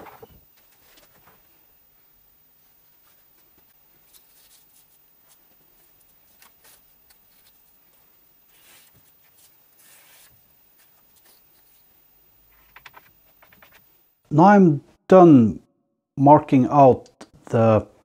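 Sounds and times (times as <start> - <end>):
marker scratching on wood: 8.5 - 11.8.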